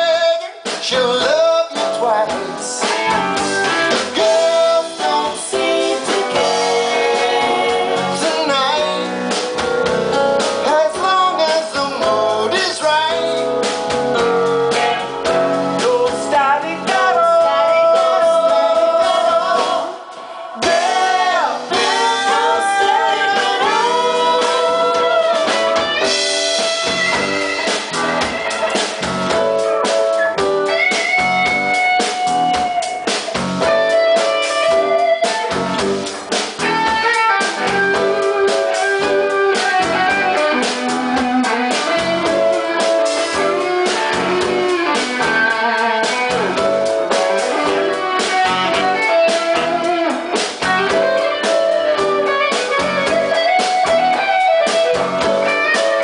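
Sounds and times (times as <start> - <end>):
person singing: 0.0 - 9.4, 10.6 - 13.5, 15.8 - 26.2
electric guitars: 0.0 - 56.0
live band playing: 0.0 - 56.0.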